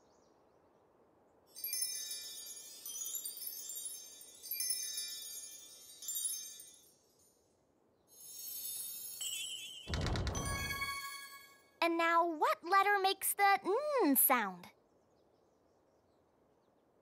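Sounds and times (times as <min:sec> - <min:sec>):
shimmering magic sparkle chimes: 0:01.6 - 0:07.5, 0:08.1 - 0:11.8.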